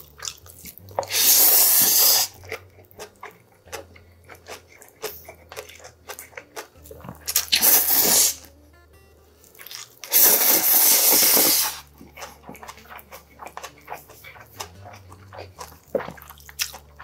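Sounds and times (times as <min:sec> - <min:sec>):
chewing with wet clicks: 0:00.0 - 0:08.8, 0:09.4 - 0:17.0
loud slurping of noodles: 0:01.0 - 0:02.4, 0:07.5 - 0:08.4, 0:10.1 - 0:11.9.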